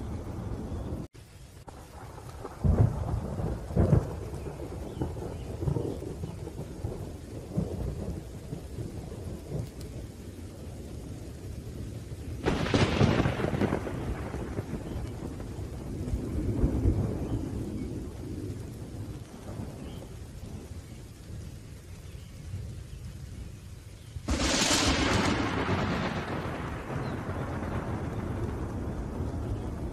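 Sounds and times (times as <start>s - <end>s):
low rumbling thunder: 0.0s - 1.1s, 1.7s - 29.9s
rain falling: 0.0s - 29.9s
sharp thunderclap: 1.7s - 9.8s, 12.4s - 20.6s, 24.2s - 29.9s.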